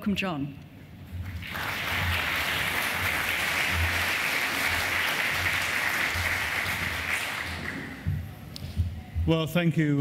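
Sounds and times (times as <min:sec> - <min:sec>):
audience applauding: 0:01.2 - 0:08.1.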